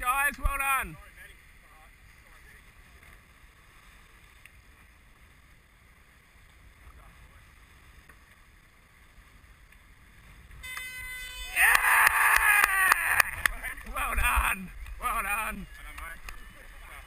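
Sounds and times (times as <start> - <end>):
wind and water rushing: 11.8 - 15.6.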